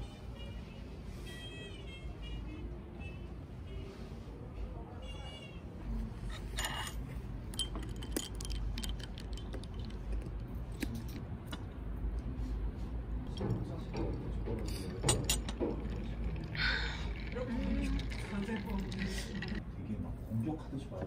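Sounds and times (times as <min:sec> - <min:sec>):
clicks and clinks of objects: 0:07.5 - 0:11.2.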